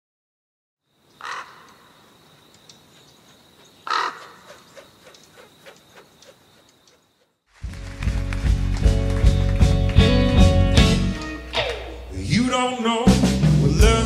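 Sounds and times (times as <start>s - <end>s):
harsh bird calls: 1.0s - 7.4s
light ticks: 2.4s - 3.3s.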